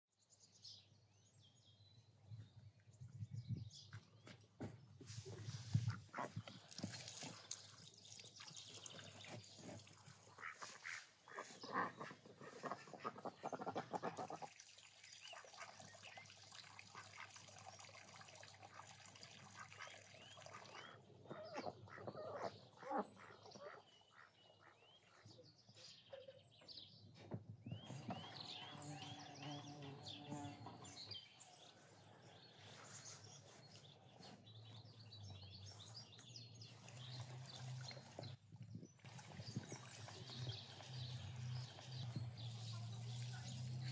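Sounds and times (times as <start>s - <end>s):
small birds chirping: 6.1s - 43.9s
duck calls: 10.4s - 14.4s.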